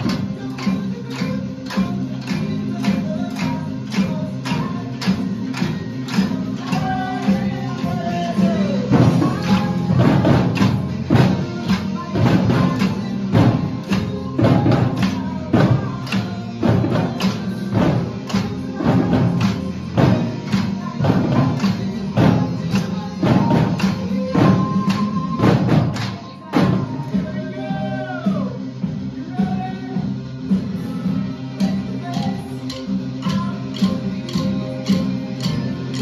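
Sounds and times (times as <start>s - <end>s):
drum hits: 0.0s - 28.1s.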